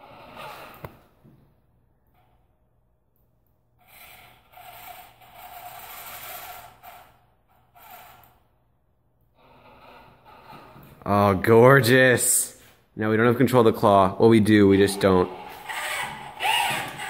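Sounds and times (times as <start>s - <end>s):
servo motors whirring: 15.3s - 17.0s.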